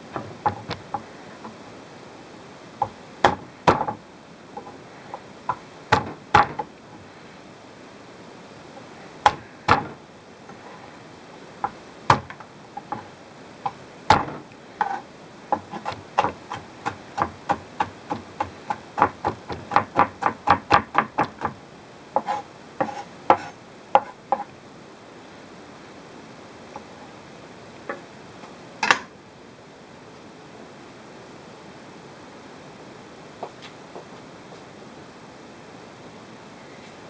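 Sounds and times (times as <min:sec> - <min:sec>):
knife chopping on wooden board: 0:05.9 - 0:06.7, 0:09.3 - 0:10.0, 0:13.7 - 0:15.0, 0:15.6 - 0:21.6, 0:22.2 - 0:24.5.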